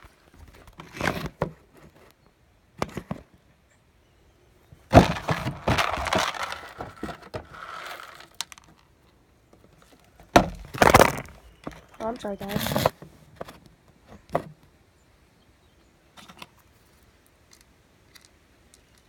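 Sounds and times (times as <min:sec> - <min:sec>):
rattling and scraping: 0:04.9 - 0:08.8, 0:09.8 - 0:13.6
knocks on wooden deck boards: 0:10.3 - 0:11.8.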